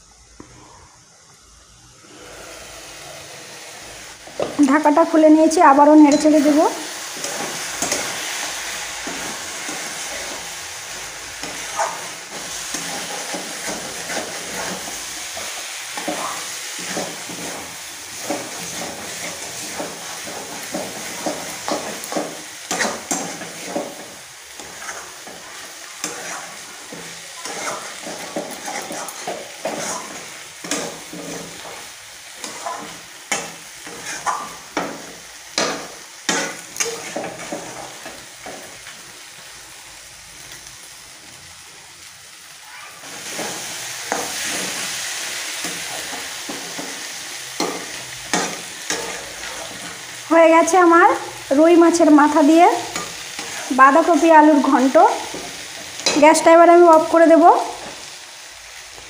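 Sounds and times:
food sizzling in oil: 0:00.0 - 0:59.0
metal spatula scraping pan: 0:11.4 - 0:38.8, 0:43.0 - 0:50.1, 0:51.9 - 0:56.5.

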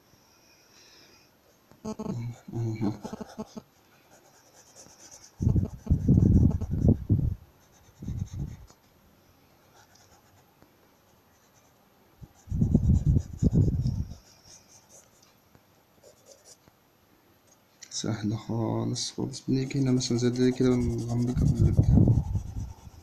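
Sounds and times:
pencil shading on paper: 0:02.4 - 0:07.0, 0:12.4 - 0:15.2, 0:19.4 - 0:23.0.

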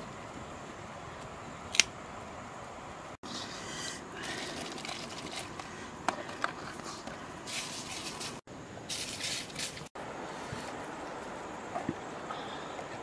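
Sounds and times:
leaves rustling: 0:00.0 - 0:13.0.

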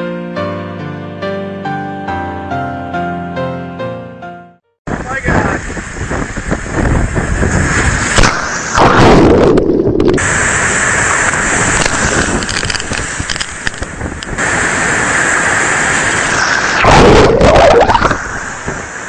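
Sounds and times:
waves crashing: 0:04.9 - 0:19.0
wind buffeting microphone: 0:04.9 - 0:19.0.

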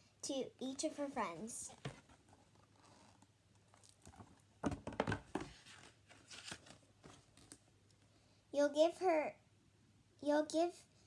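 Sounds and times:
paper pages rustling and crinkling: 0:01.7 - 0:07.6.

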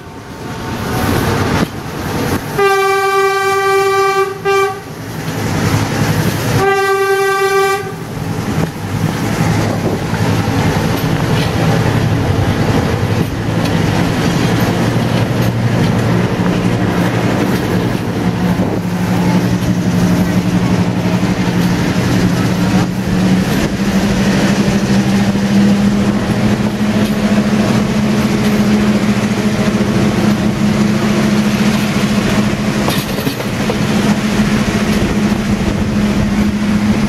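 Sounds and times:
train rumbling on rails: 0:00.0 - 0:37.0
train horn blasts: 0:02.6 - 0:05.0, 0:06.6 - 0:08.2.

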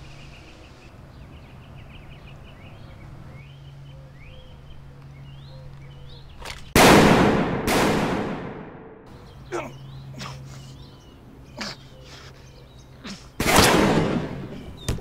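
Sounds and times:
small birds chirping: 0:00.0 - 0:06.8, 0:09.1 - 0:13.7, 0:14.3 - 0:15.0
handgun shot: 0:13.4 - 0:15.0.

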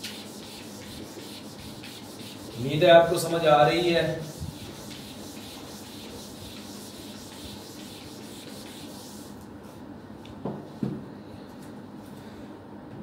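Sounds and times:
duster wiping a whiteboard: 0:00.0 - 0:09.8.

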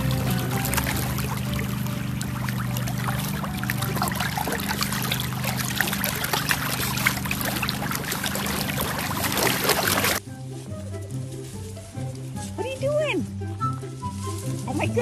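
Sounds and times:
water splashing and trickling: 0:00.0 - 0:10.2.

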